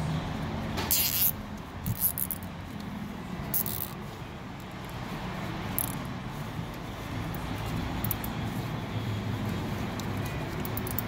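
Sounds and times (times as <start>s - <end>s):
zip ties rasping: 0.9s - 2.9s, 3.5s - 4.0s, 9.9s - 11.0s
handling clicks: 9.9s - 11.0s.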